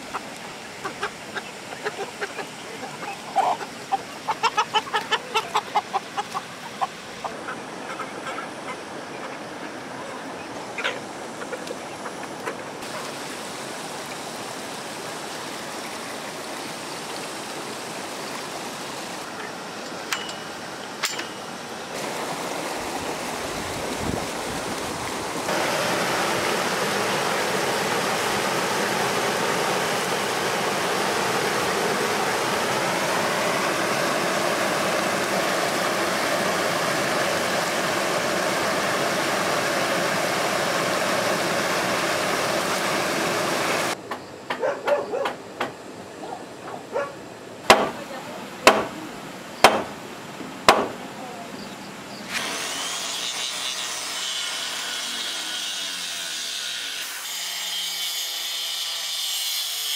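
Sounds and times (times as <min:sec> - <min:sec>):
water rushing in a stream: 0:00.0 - 0:44.0, 0:45.4 - 0:54.8
sharp knocks on wood: 0:47.7 - 0:48.0, 0:48.6 - 0:48.9, 0:49.6 - 0:49.9, 0:50.7 - 0:51.0.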